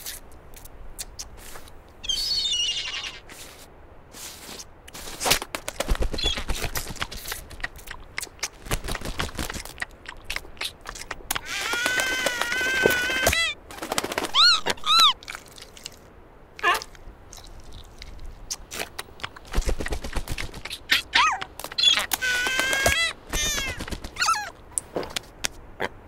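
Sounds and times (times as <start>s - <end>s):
cartoon seal squeaky calls: 2.0s - 3.6s, 6.1s - 6.6s, 11.4s - 13.6s, 14.2s - 15.2s, 16.6s - 16.9s, 20.6s - 24.6s.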